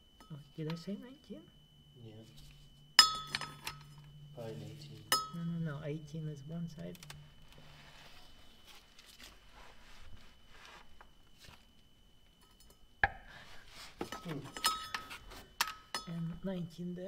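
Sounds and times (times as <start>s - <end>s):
hand tools clicking and scraping: 13.9s - 16.2s.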